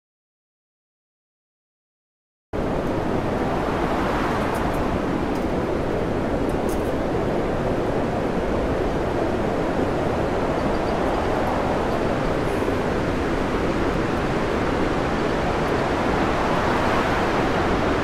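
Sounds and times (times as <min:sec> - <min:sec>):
heavy breaking seas: 0:02.6 - 0:18.0
storm wind: 0:02.6 - 0:18.0
wind on microphone: 0:02.6 - 0:18.0.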